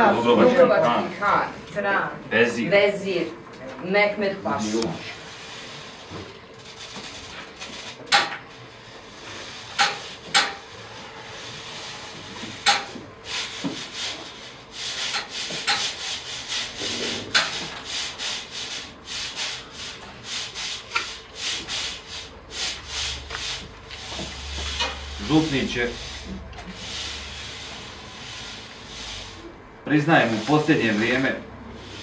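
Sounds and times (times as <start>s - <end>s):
rhythmic scraping strokes: 8.8s - 32.0s.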